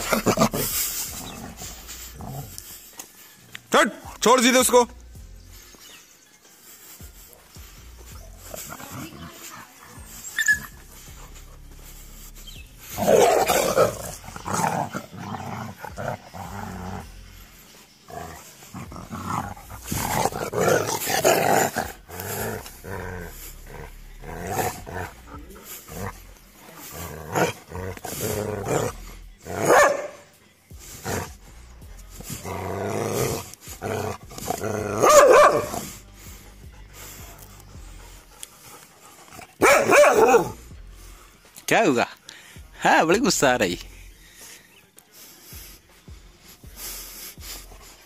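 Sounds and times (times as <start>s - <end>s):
dogs growling while play-fighting: 0.0s - 2.8s, 8.1s - 30.2s, 30.9s - 40.8s.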